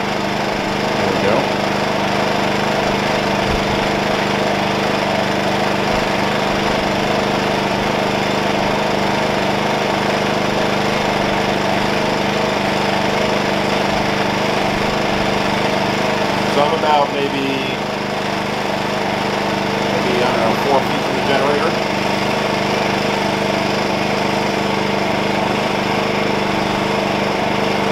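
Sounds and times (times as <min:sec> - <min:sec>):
generator idling: 0:00.0 - 0:27.9.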